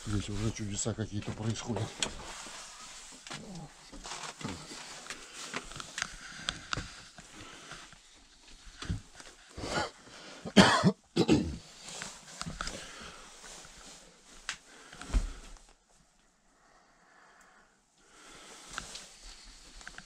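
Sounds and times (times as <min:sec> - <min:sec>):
faint knocks and rustles: 0:00.0 - 0:09.5
man coughing: 0:10.5 - 0:11.6.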